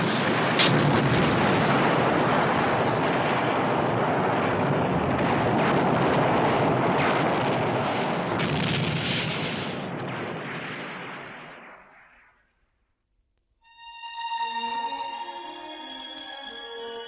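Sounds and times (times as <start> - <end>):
explosion rumble with crackle: 0.0 - 13.4.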